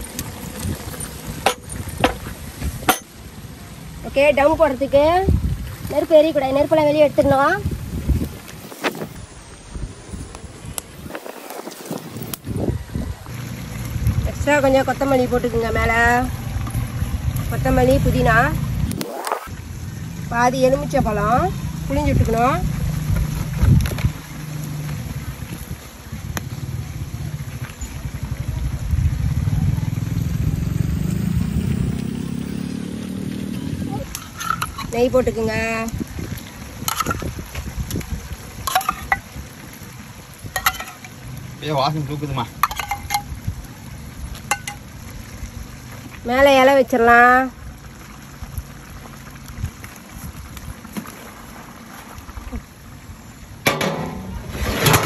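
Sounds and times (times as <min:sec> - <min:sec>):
leaves rustling and small clicks: 0:07.1 - 0:09.4, 0:10.2 - 0:12.6, 0:22.1 - 0:26.7, 0:33.2 - 0:46.3, 0:47.7 - 0:53.1
metal pot lid clanking: 0:36.9 - 0:37.2, 0:38.7 - 0:39.2, 0:40.6 - 0:41.1, 0:42.6 - 0:43.3, 0:53.7 - 0:55.0.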